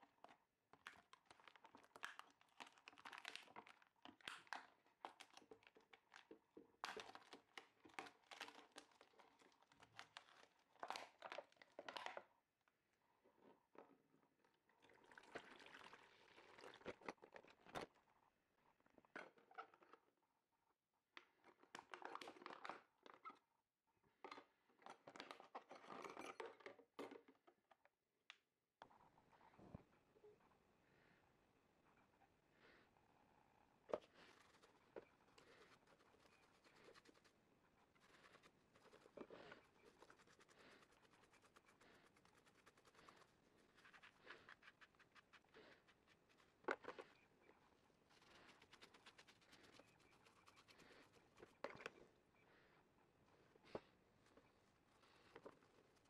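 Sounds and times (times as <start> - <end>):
liquid pouring into plastic tub: 14.7 - 17.2.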